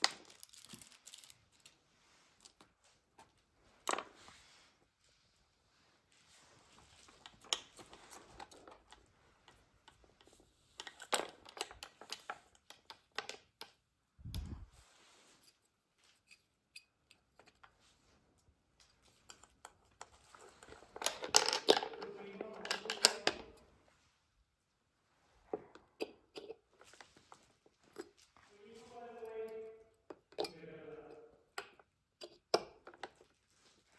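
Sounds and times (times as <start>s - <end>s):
plastic cup clattering: 19.4s - 23.6s.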